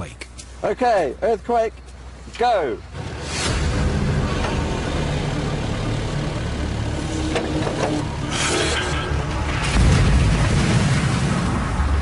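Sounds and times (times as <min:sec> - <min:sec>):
diesel engine rumbling: 0:00.0 - 0:12.0
rushing burst of noise: 0:03.0 - 0:06.0, 0:08.2 - 0:12.0.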